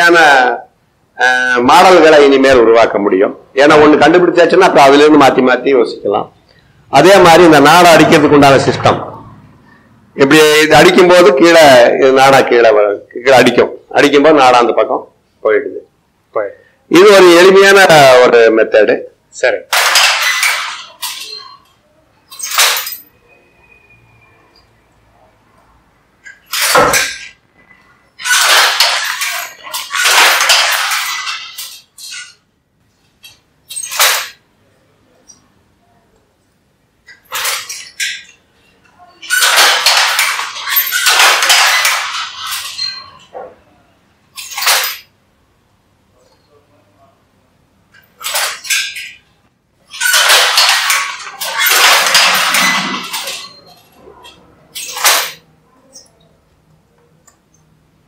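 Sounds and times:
wooden loom clattering: 19.7 - 21.7, 22.3 - 23.1, 26.2 - 27.4, 28.2 - 32.4, 33.2 - 34.4, 37.0 - 38.4, 39.2 - 43.6, 44.4 - 45.1, 47.9 - 49.3, 49.9 - 56.1
handloom mechanism moving: 19.7 - 23.1, 26.2 - 34.4, 37.0 - 43.7, 44.3 - 45.1, 47.9 - 56.2.

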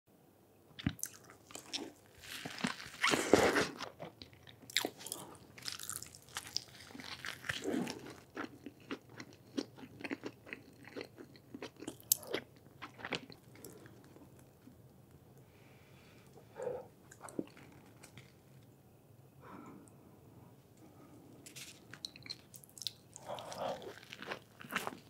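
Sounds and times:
crunchy biting and chewing: 0.8 - 14.2, 21.5 - 25.0.

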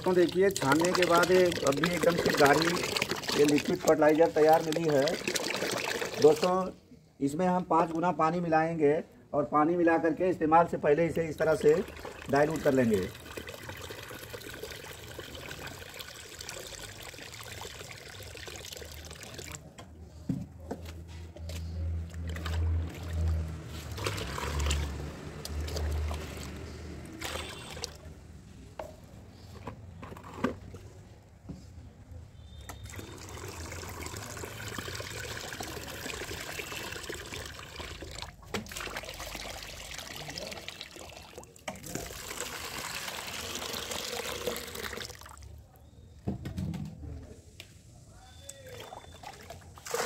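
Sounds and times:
slurry sloshing as hand stirs: 0.0 - 6.5, 22.0 - 28.0
water pouring into a pot: 0.0 - 6.7, 11.4 - 19.7, 22.3 - 28.0, 32.8 - 45.5.

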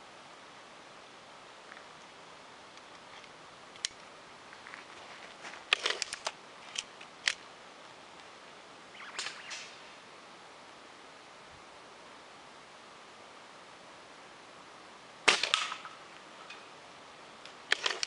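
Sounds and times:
air rifle clicks: 5.7 - 7.4, 17.7 - 18.0
rifle handling rattle: 5.7 - 7.4, 17.7 - 18.0.

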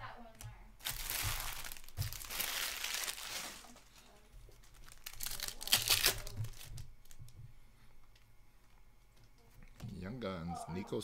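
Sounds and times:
card wrappers tearing and crinkling: 0.8 - 7.2.

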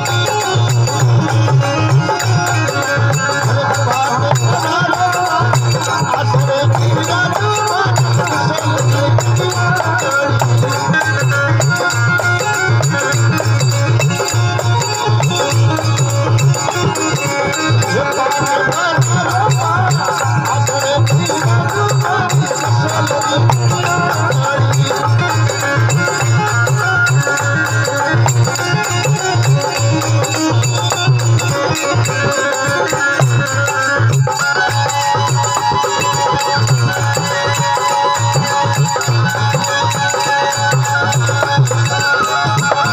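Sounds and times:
drum and rattle rhythm: 0.0 - 42.9.

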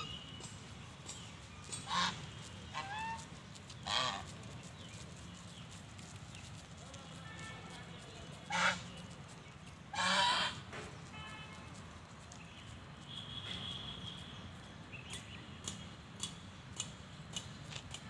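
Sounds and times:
geese honking: 1.7 - 4.3, 8.5 - 8.8, 9.9 - 10.6.

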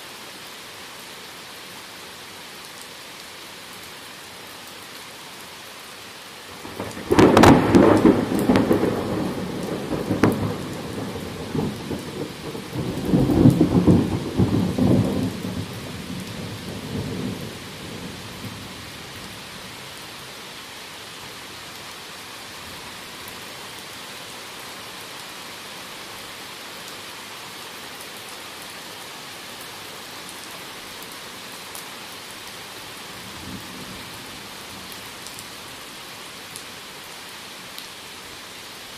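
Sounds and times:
steady rain: 0.0 - 38.9
thunder cracking and rolling: 6.6 - 18.1.

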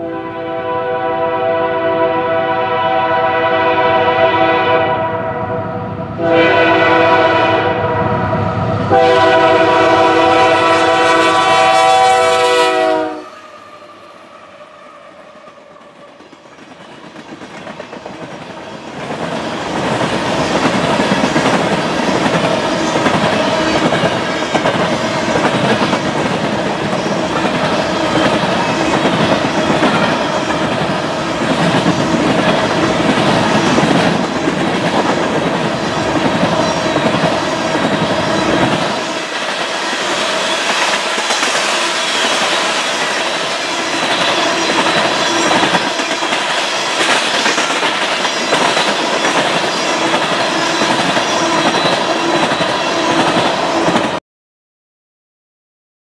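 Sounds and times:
locomotive air horn blasts: 0.0 - 14.3.

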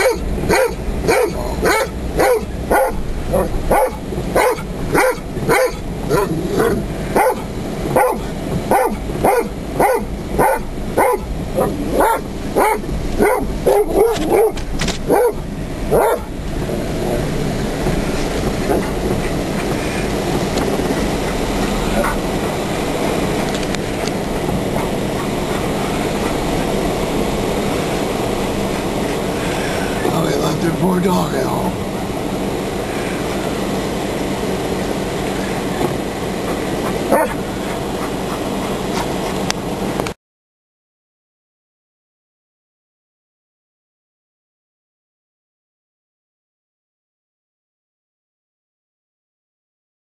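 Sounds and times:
dog barking: 0.0 - 16.3, 22.0 - 22.2, 37.1 - 37.4
car driving heard from inside: 0.0 - 40.2
vehicle road and engine noise: 0.0 - 40.2.

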